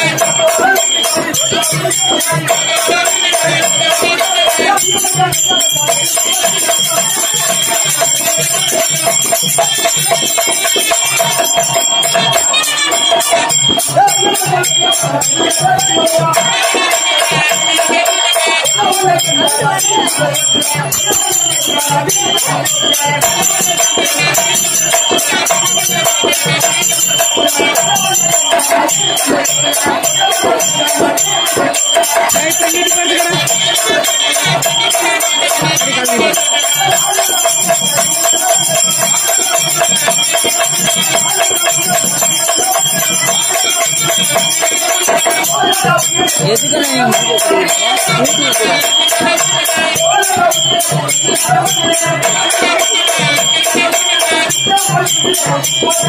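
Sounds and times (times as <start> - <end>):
drumming: 0.0 - 56.0.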